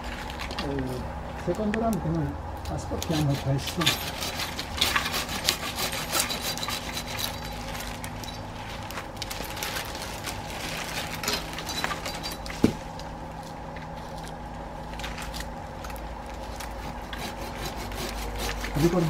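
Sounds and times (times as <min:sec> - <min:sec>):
steady low hum: 0:00.0 - 0:19.0
twigs crackling and rustling: 0:00.0 - 0:19.0.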